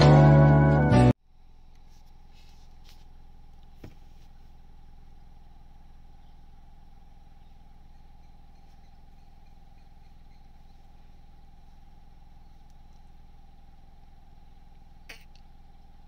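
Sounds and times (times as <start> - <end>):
faint steady whine: 1.1 - 16.0
vehicle engine idling: 1.2 - 16.0.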